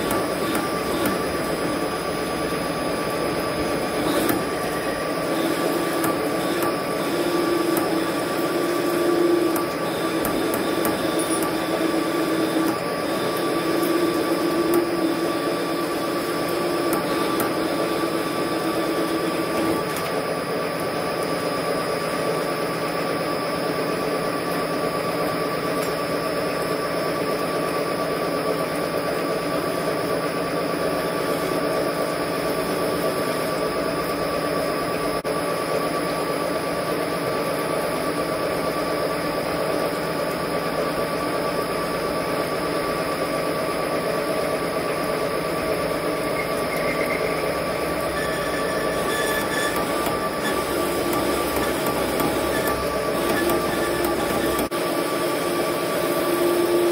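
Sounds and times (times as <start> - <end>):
low tone of tool cutting metal: 0.0 - 1.9, 3.4 - 20.1, 46.3 - 54.8
lathe motor and gear whine: 0.0 - 56.9.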